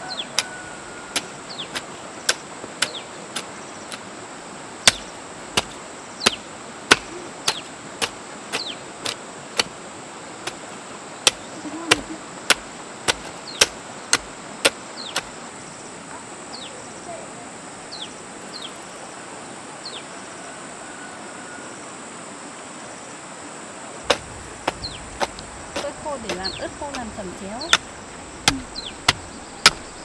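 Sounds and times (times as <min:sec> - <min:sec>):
hoe chopping into soil: 0:00.4 - 0:04.1, 0:04.8 - 0:09.8, 0:10.4 - 0:15.3, 0:24.0 - 0:30.0.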